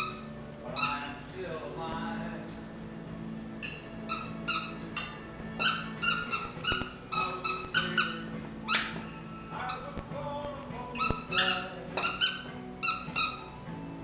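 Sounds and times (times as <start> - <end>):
dog toy squeaker squeaking: 0.0 - 1.2, 3.6 - 9.9, 11.0 - 13.6.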